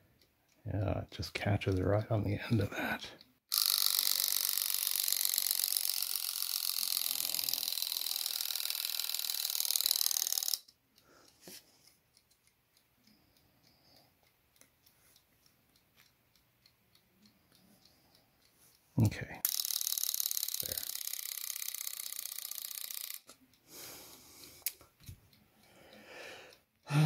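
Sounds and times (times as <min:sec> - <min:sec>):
alarm clock metallic buzzing rattle: 0:03.5 - 0:10.8, 0:19.4 - 0:23.9
faint clicks: 0:03.9 - 0:27.0.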